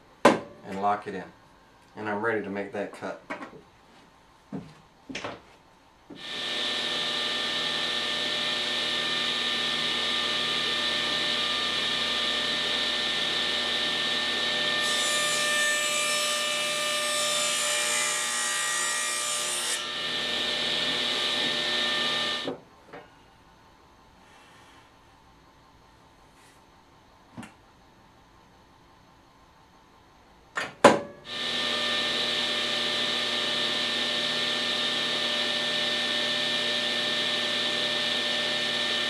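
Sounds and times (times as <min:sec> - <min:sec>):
table saw motor whine: 0:06.2 - 0:22.5, 0:31.2 - 0:39.0
saw blade cutting panel: 0:06.2 - 0:22.6, 0:31.3 - 0:39.0.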